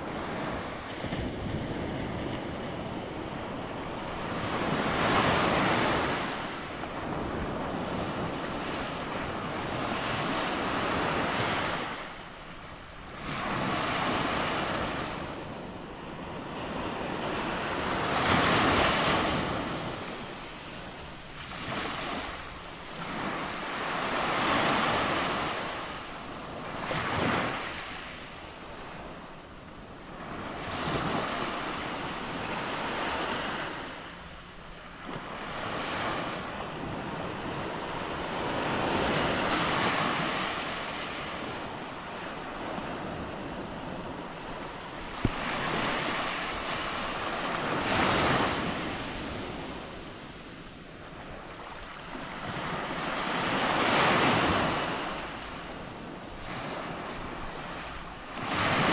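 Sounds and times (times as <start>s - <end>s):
surf breaking on sandy beach: 35.2s - 50.0s.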